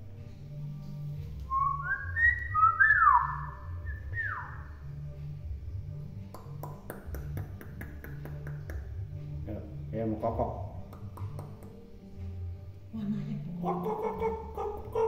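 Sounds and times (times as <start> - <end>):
myna whistling: 1.5 - 4.7.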